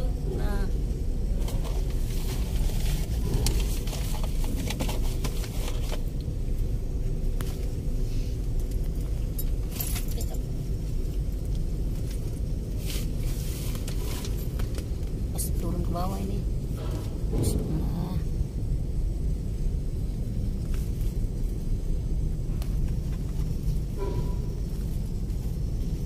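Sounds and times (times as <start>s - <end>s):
low engine rumble: 0.0s - 26.0s.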